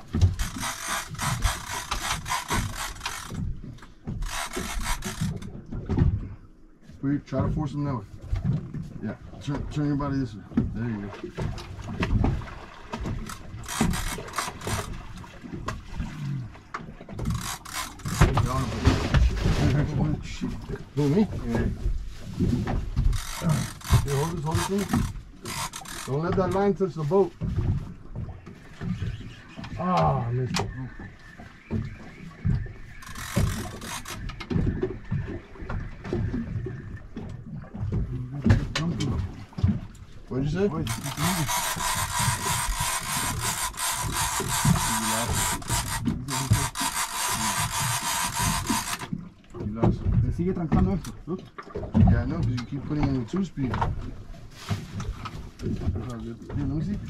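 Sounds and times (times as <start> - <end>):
knocks and bumps on boat: 0.0 - 57.0
fishing reel ratcheting: 0.2 - 3.5, 4.2 - 5.5, 13.2 - 15.0, 17.2 - 18.5, 23.1 - 26.3, 33.0 - 34.3, 40.8 - 49.1.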